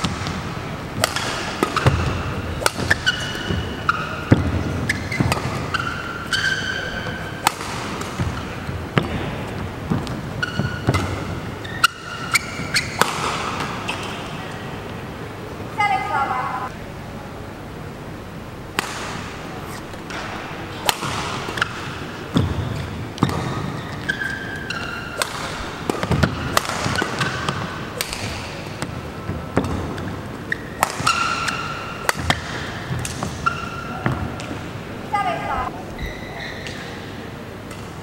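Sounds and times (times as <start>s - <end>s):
racket hitting shuttlecock: 0.0s - 14.2s, 18.7s - 34.7s
shoe squeaks on court: 10.4s - 11.0s, 36.0s - 36.9s.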